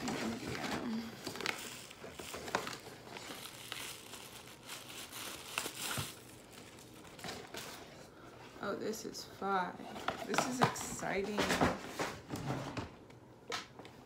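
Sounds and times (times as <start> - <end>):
paper and plastic crinkling: 0.0 - 8.1.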